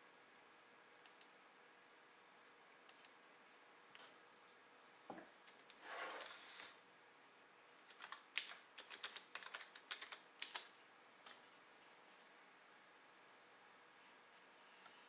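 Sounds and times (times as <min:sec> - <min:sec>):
computer keyboard typing: 0:07.8 - 0:10.7
soft rustle: 0:11.1 - 0:12.4.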